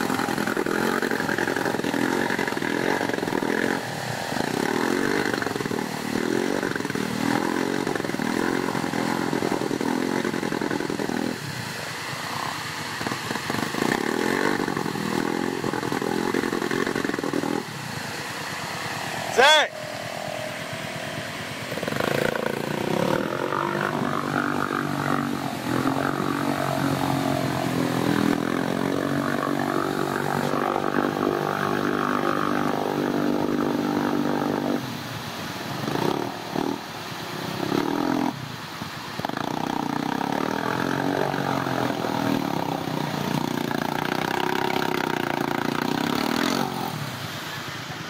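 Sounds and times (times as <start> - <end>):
atv engine revving in mud: 0.0 - 48.0.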